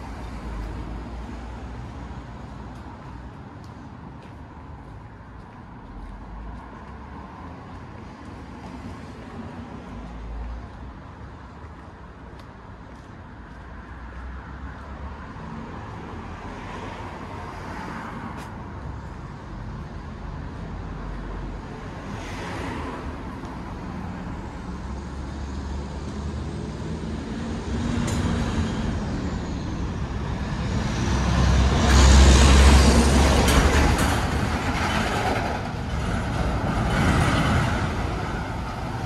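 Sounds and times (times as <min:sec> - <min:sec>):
low traffic rumble: 0:00.0 - 0:39.0
vehicles passing: 0:00.0 - 0:39.0.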